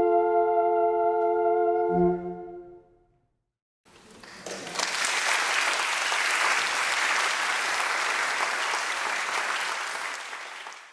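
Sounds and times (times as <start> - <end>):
audience applauding: 3.9 - 10.9.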